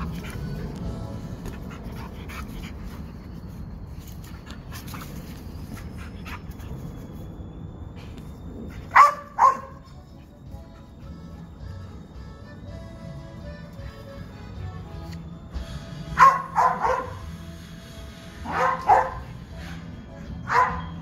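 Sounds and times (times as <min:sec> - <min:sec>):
dog barking: 0:08.9 - 0:09.8, 0:16.2 - 0:17.2, 0:18.5 - 0:19.3, 0:20.5 - 0:21.0.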